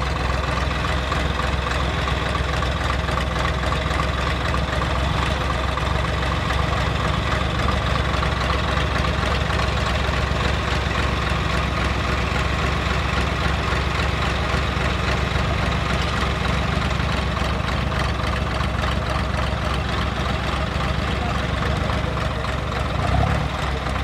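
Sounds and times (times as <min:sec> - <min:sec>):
tractor diesel engines idling: 0:00.0 - 0:24.0.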